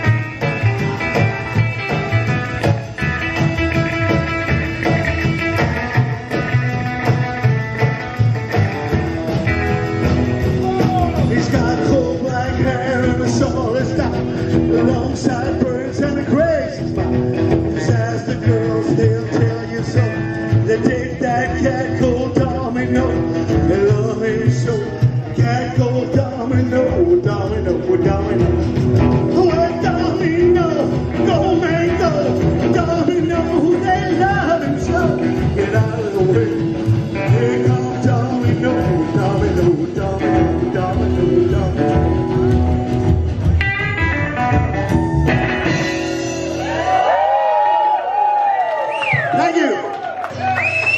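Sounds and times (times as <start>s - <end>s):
rockabilly band playing: 0.0s - 50.9s
man singing: 10.0s - 43.1s.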